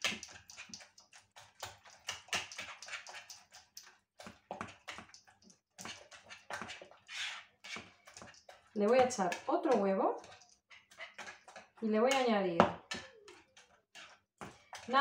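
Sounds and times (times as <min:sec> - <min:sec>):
whisk scraping in plastic bowl: 0:00.0 - 0:11.8.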